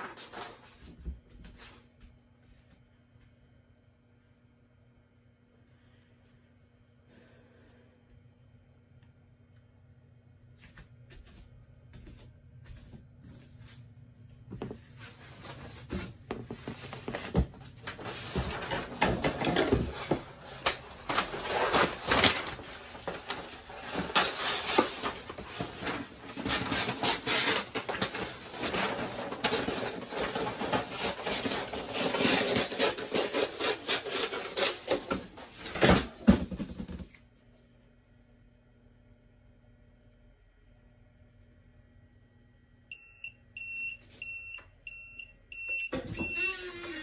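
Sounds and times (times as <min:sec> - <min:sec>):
handling knocks and rustles: 0:14.5 - 0:32.8.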